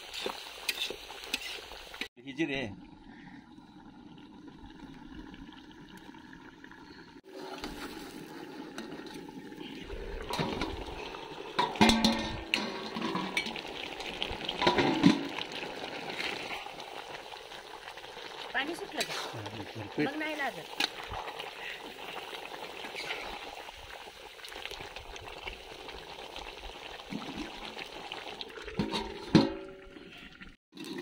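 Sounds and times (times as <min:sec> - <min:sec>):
watery hiss of food cooking: 0:00.0 - 0:29.1
metal lid clanking and scraping: 0:08.7 - 0:09.2, 0:10.2 - 0:15.4, 0:28.7 - 0:30.0.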